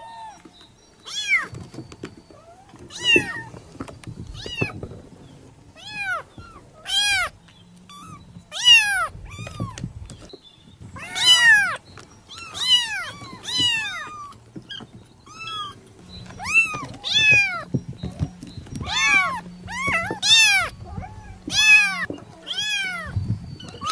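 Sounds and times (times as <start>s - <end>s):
kittens mewing: 5.8s - 9.9s, 11.0s - 17.8s, 18.7s - 23.9s.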